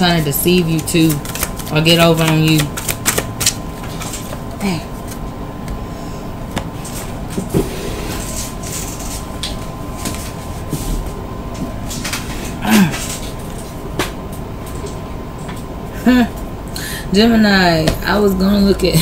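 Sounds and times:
cards and clothing rustling: 0.1 - 5.2.

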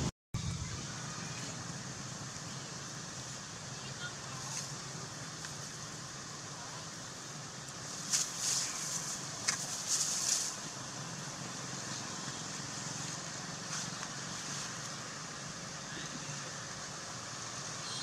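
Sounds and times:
steady hiss: 0.7 - 18.0.

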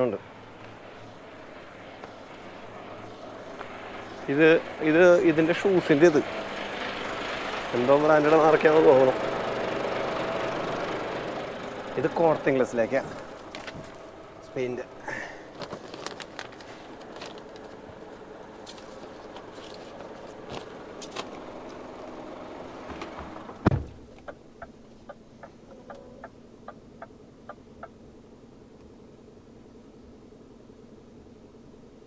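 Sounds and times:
steady outdoor noise: 0.0 - 32.0
truck door shutting with a thud: 22.8 - 24.1.

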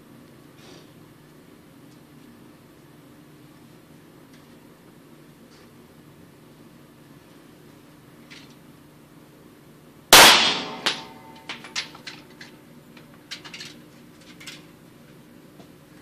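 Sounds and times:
pistol shot: 10.1 - 11.4.

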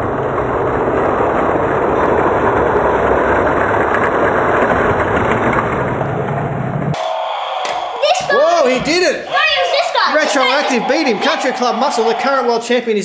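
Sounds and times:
toy cars rolling down plastic track: 0.4 - 6.5.

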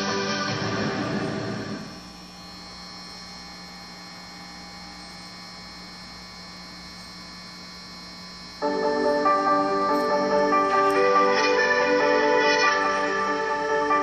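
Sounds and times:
music from television: 0.0 - 2.1, 8.6 - 14.0
electrical mains hum: 0.0 - 14.0.

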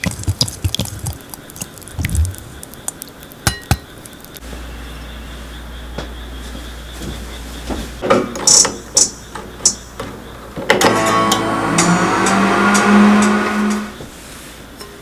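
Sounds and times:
plucked guitar start-up notes: 10.8 - 12.9.

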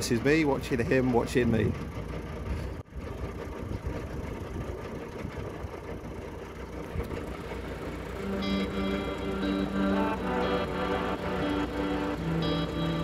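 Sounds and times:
diesel engine idling: 0.0 - 13.0
background music: 7.6 - 13.0.

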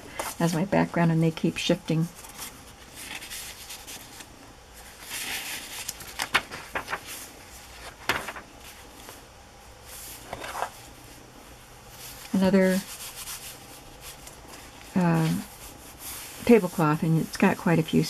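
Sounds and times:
paper pages rustling: 2.1 - 9.3, 9.9 - 11.2
paper flicking: 5.1 - 7.2, 7.8 - 8.5.

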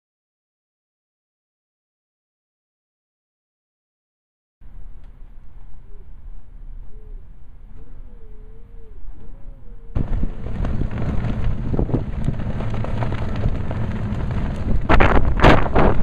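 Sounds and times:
wind buffeting microphone: 9.9 - 16.0.

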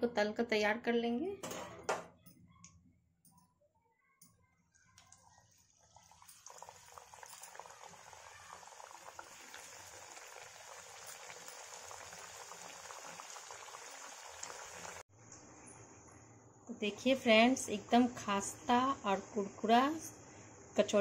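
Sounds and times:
food deep-frying in hot oil: 5.1 - 15.1.

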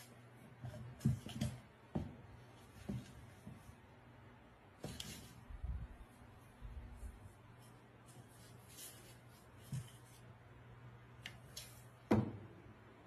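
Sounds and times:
kitten scuffling and rustling: 0.0 - 3.8, 4.8 - 10.4.

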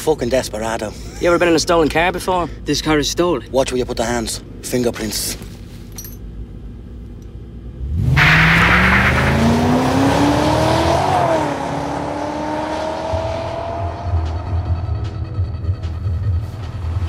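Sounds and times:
car engine revving: 7.6 - 17.0.

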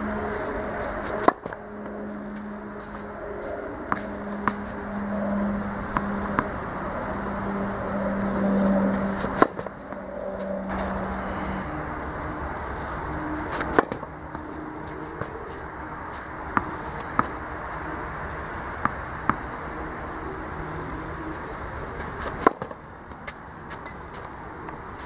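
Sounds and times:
outdoor background noise: 0.0 - 25.0
racket hitting tennis ball: 0.1 - 11.6, 12.6 - 17.8, 21.5 - 24.3
tennis ball bouncing: 0.3 - 10.9, 13.5 - 17.8, 18.8 - 19.4, 22.0 - 24.2.

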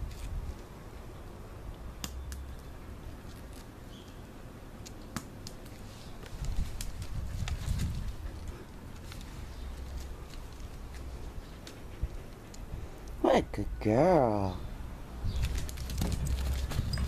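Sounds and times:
dog claws clicking on concrete: 4.8 - 13.2, 15.4 - 17.0.

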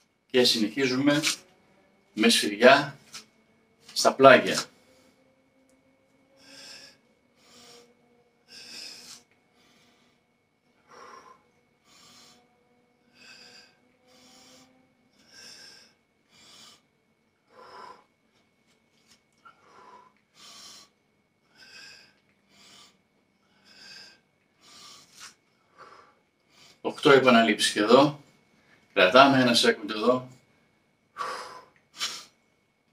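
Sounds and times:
man breathing hard: 6.3 - 26.8, 31.2 - 32.4.

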